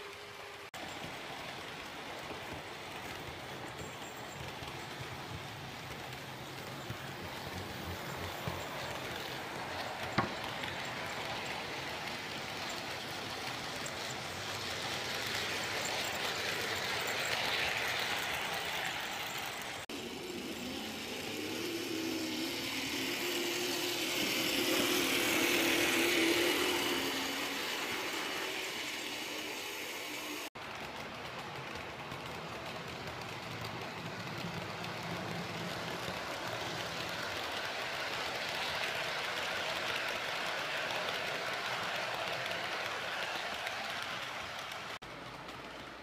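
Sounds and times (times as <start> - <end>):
model train wheels rattling: 0.0 - 46.0.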